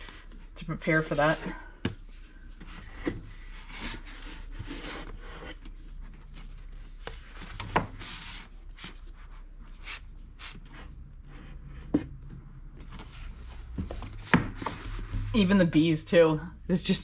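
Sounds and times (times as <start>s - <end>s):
books rubbing and scraping on shelf: 0.0s - 15.6s
sharp knocks of books: 13.7s - 15.0s.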